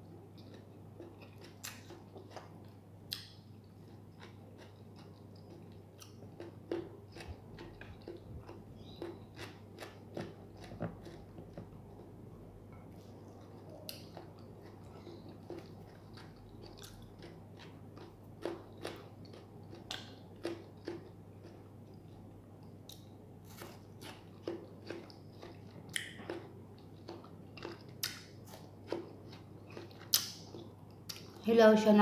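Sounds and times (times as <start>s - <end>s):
faint low hum: 0.0s - 32.0s
person biting and chewing: 4.2s - 11.7s, 22.9s - 31.3s.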